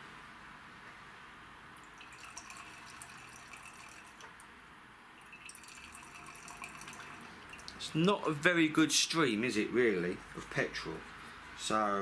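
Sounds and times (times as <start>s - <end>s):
fuel trickling into glass jar: 1.8s - 4.4s, 5.2s - 8.0s.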